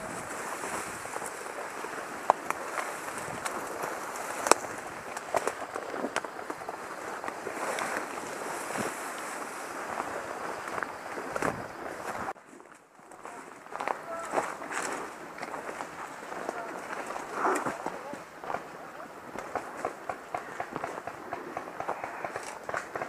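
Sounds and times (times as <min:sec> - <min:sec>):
wind rubbing on microphone: 0:00.0 - 0:12.4
sharp cracks: 0:19.3 - 0:23.0.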